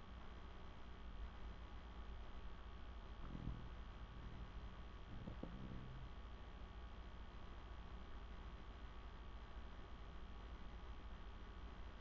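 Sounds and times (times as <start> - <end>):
steady low hum: 0.0 - 12.0
dog snoring softly: 3.2 - 6.2.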